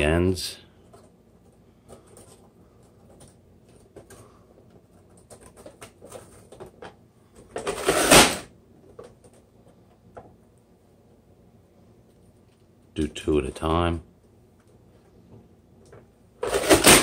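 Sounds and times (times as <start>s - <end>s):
small taps and rustles: 14.5s - 16.2s.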